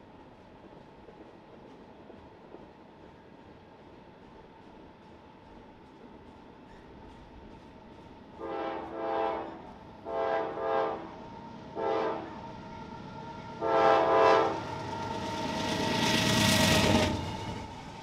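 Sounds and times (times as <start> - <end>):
locomotive air horn blasts: 8.4 - 11.1, 11.8 - 12.4, 13.6 - 14.7
locomotive rumbling past: 8.4 - 18.0.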